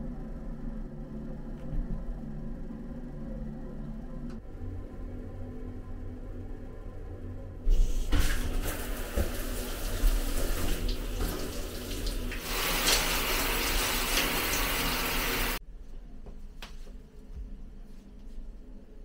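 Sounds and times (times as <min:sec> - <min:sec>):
shower head spraying water: 0:07.7 - 0:15.6.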